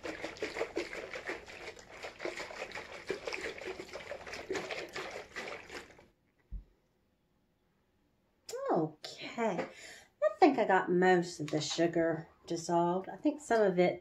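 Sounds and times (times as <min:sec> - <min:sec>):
liquid sloshing in glass jug: 0:00.0 - 0:06.2.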